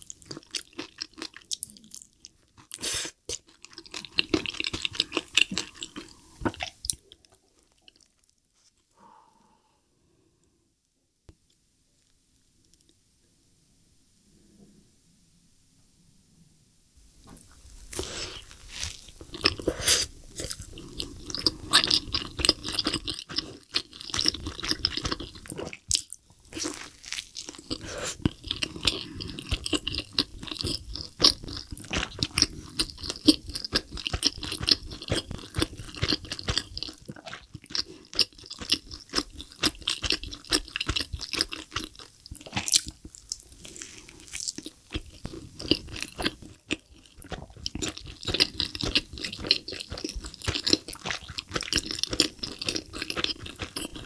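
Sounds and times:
wet chewing with smacks: 21.3s - 54.0s.

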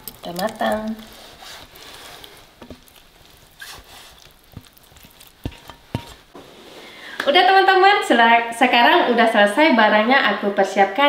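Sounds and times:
paste sizzling faintly: 0.0s - 7.0s
spatula scraping a wok: 0.1s - 7.0s.

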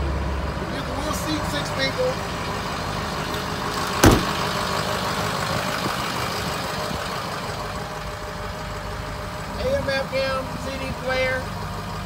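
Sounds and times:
diesel engine idling: 0.0s - 12.0s
loud thump: 4.0s - 4.5s.

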